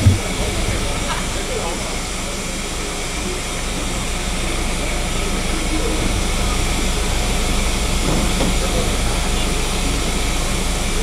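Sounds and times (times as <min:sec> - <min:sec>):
faint voices: 0:00.0 - 0:11.0
rushing hiss and low rumble: 0:00.0 - 0:11.0.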